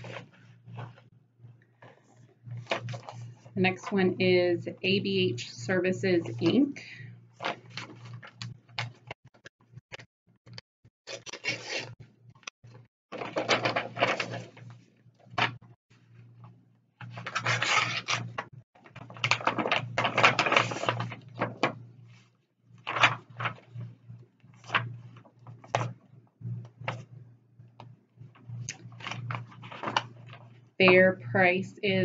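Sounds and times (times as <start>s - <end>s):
paper rustling and crinkling: 0.0s - 1.1s, 1.8s - 4.0s, 11.1s - 12.0s, 13.1s - 14.8s, 17.0s - 23.8s, 24.5s - 26.0s, 28.7s - 30.6s.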